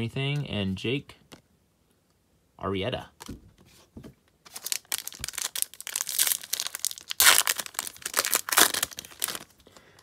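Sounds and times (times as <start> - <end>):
foil wrapper crinkling and tearing: 4.5 - 9.9.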